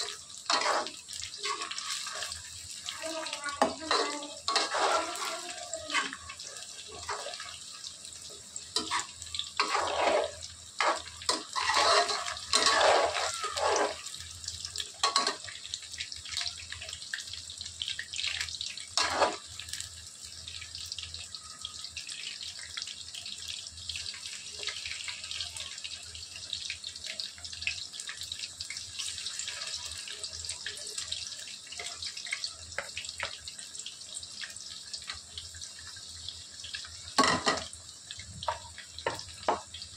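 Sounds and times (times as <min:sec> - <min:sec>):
steel spoon scraping a pan: 0:00.0 - 0:02.5, 0:03.6 - 0:06.3, 0:08.7 - 0:14.1, 0:19.0 - 0:19.4
food deep-frying in hot oil: 0:00.0 - 0:39.9.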